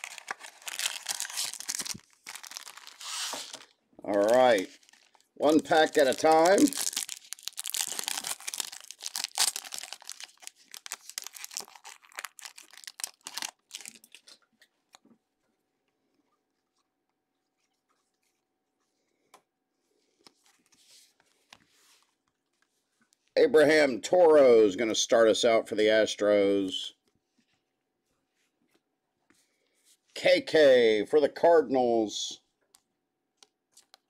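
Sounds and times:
foil wrapper tearing and crinkling: 0.0s - 14.4s.

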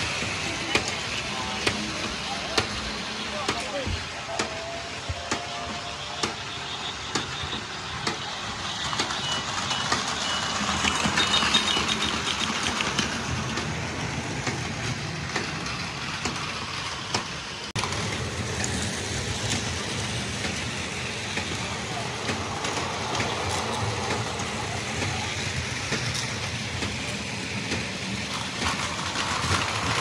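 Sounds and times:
toy train motor whir: 4.8s - 30.0s
clicks and rattles on plastic track: 7.1s - 19.8s, 20.4s - 30.0s.

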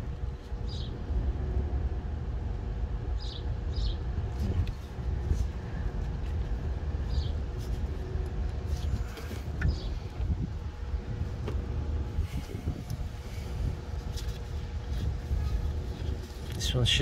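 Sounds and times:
faint steady hum: 0.0s - 17.0s
steady low rumble: 0.0s - 17.0s
ticks and scrapes among hoses: 12.2s - 17.0s.

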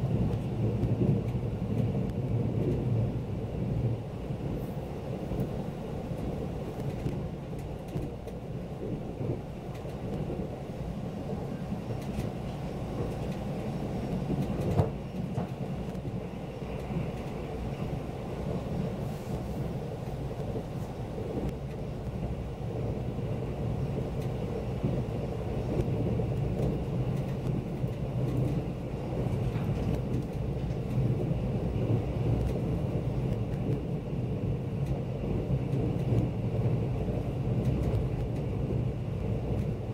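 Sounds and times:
train rumble inside passenger car: 0.0s - 39.9s.

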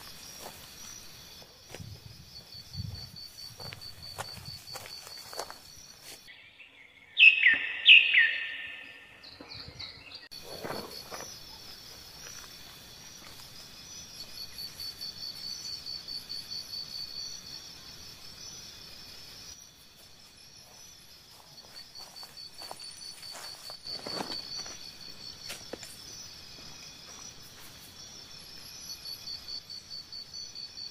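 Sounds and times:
footsteps crunching dry grass: 0.0s - 6.3s, 20.6s - 27.9s
insect chirring: 0.0s - 6.3s, 10.3s - 30.9s.

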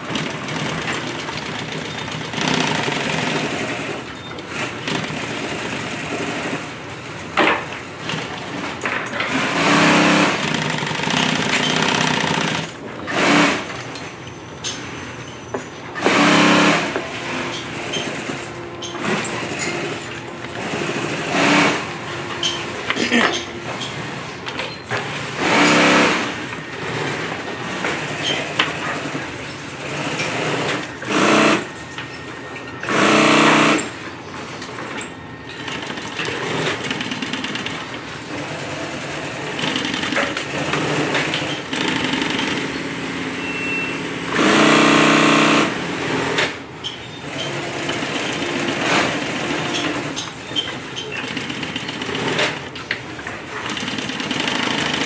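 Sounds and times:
sewing machine stitching: 0.0s - 6.8s, 9.2s - 13.8s, 16.0s - 24.3s, 25.0s - 27.3s, 28.0s - 31.7s, 32.8s - 34.0s, 35.6s - 43.3s, 44.0s - 46.6s, 47.2s - 52.7s, 53.5s - 55.0s.

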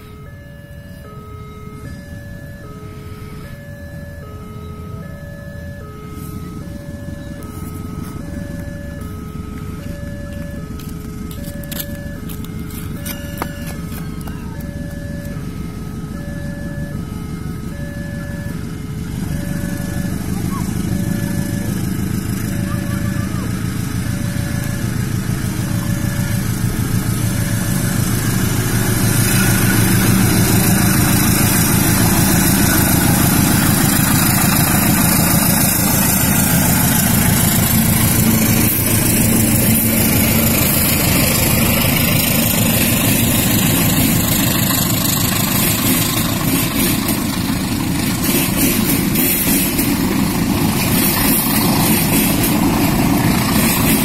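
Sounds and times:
locomotive engine rumble: 0.0s - 54.0s
two-note electronic beep: 3.4s - 15.5s, 19.3s - 46.9s
train wheels clattering on rails: 24.6s - 54.0s.

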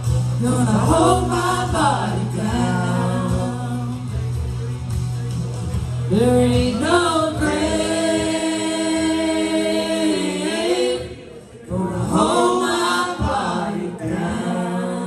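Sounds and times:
man and woman singing together: 0.4s - 4.2s, 6.1s - 15.0s.

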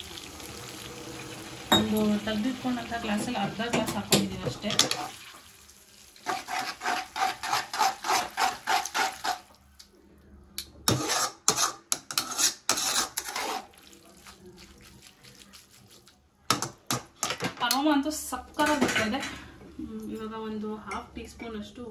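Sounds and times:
metal tongs scraping a metal pan: 6.2s - 9.4s, 10.9s - 13.7s.

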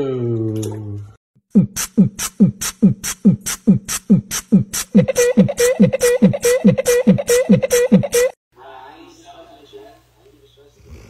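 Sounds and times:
hissing hi-hat: 1.6s - 5.2s.

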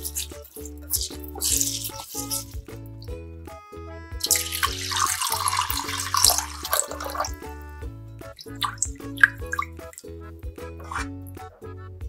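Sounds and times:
water pouring into a bowl: 0.0s - 2.7s, 4.2s - 7.6s, 8.4s - 10.1s, 10.8s - 11.1s
hand splashing rice in water: 0.0s - 2.8s, 4.2s - 7.6s, 8.4s - 10.1s, 10.8s - 11.1s
background music with steady beat: 0.0s - 12.0s.

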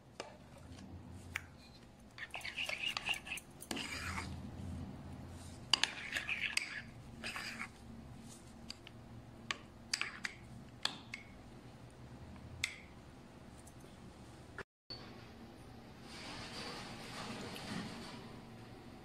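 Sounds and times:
wet scraping smear: 0.6s - 8.6s.

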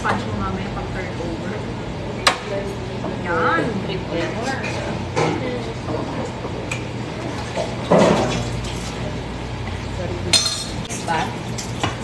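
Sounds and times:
ventilation hum: 0.0s - 12.0s
utensils clinking: 10.3s - 11.8s.

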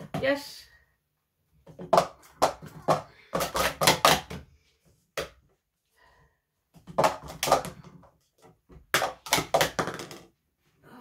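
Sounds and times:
plastic cups clattering: 1.6s - 4.6s, 6.7s - 10.4s.

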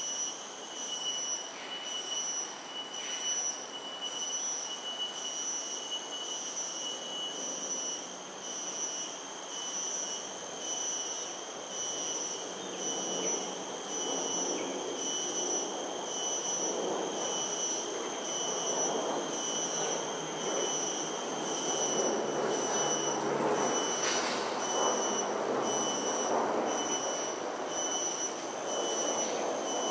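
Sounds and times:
insect shrill pulsing call: 0.0s - 29.9s.

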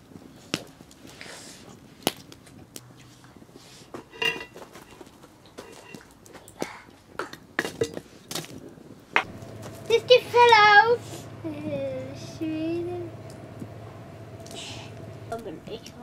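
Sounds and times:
wood fire crackling and popping: 2.0s - 2.9s.

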